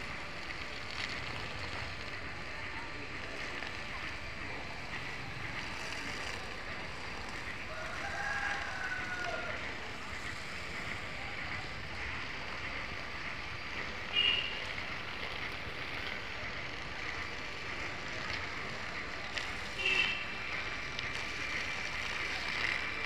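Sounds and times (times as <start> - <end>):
rooster crowing: 7.7 - 9.8.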